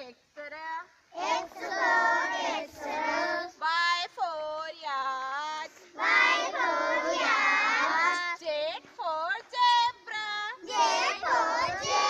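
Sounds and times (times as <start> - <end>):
children chanting in unison: 1.1 - 3.6, 6.0 - 8.0, 10.6 - 12.0.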